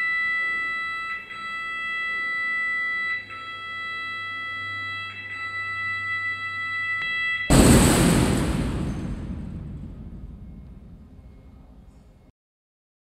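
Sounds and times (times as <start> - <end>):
low hum: 7.5 - 12.3.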